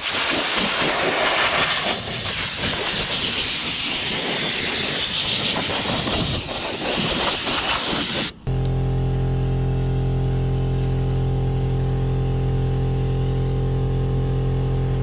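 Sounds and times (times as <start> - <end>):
soda blaster spraying hiss: 0.0 - 8.4.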